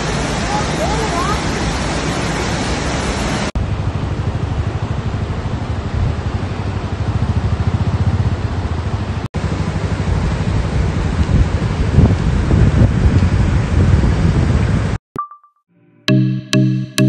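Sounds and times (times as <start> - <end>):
waterfall rushing: 0.0 - 3.6
vehicle road and engine rumble: 2.7 - 15.0.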